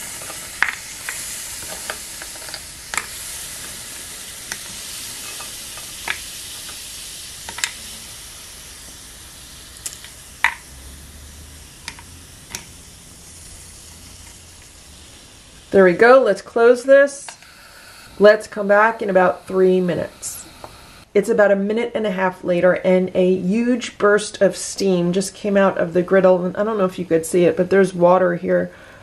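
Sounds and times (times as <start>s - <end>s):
seafood sizzling on griddle: 0.0s - 21.1s.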